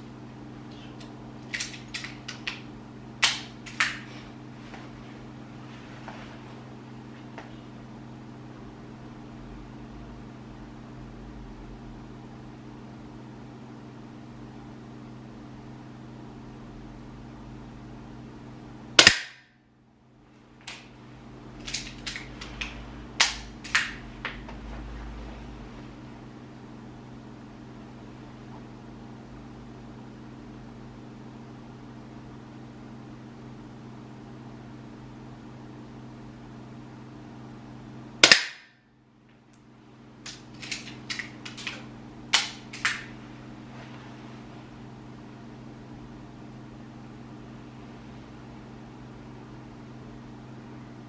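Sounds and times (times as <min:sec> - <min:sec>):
pistol shot crack: 0:19.0 - 0:19.5, 0:38.2 - 0:38.8.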